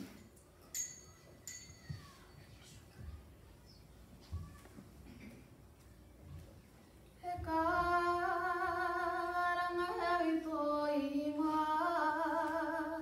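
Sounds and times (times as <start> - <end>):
girl singing unaccompanied: 7.2 - 13.0.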